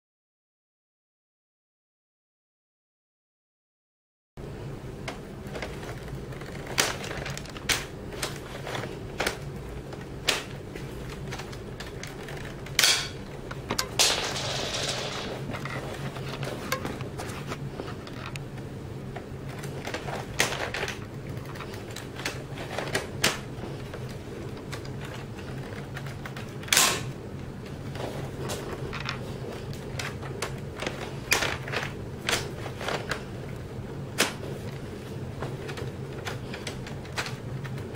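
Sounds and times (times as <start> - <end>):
sharp plastic snaps: 9.2 - 13.9, 26.1 - 27.1, 34.1 - 34.4.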